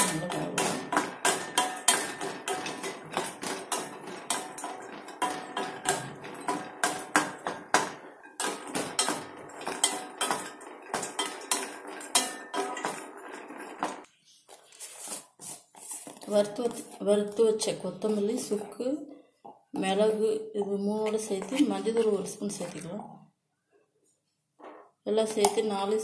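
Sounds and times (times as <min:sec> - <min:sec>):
pan ringing: 0:00.0 - 0:13.8
ginger clattering in metal pan: 0:00.0 - 0:14.1.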